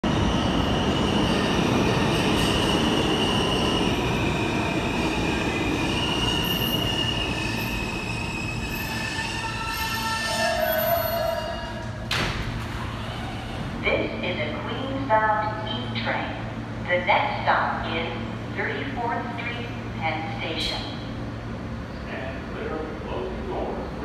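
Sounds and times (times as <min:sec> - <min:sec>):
falling whine of train: 0:00.0 - 0:16.8
train wheels rumbling on rail: 0:00.0 - 0:16.8
high wheel squeal: 0:06.0 - 0:11.7.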